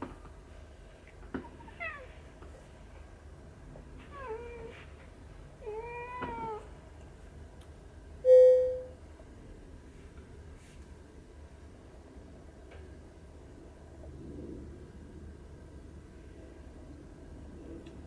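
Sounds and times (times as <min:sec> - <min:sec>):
cat meowing: 0:05.6 - 0:06.7
steady tone: 0:08.3 - 0:09.0.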